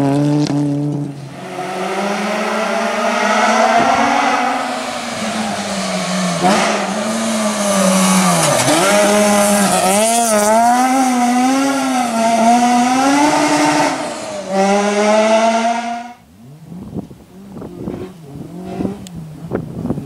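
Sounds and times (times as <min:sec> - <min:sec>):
rally car engine revving: 0:00.0 - 0:20.0
gravel hissing under tyres: 0:01.1 - 0:10.2.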